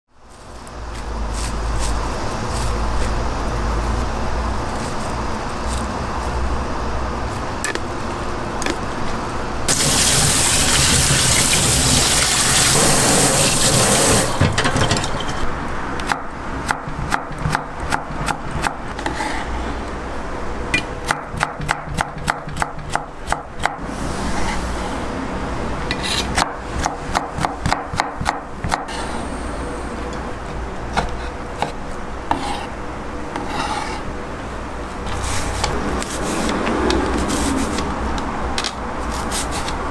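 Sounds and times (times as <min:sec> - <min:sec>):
pouring water hiss: 0:09.7 - 0:14.4.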